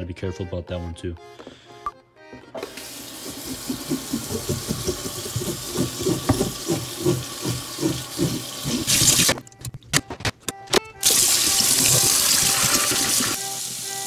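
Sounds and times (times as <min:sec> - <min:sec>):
faucet water running into sink: 0:02.7 - 0:09.3, 0:11.0 - 0:13.9
hands rubbing wet fish: 0:03.2 - 0:09.3, 0:11.2 - 0:13.4.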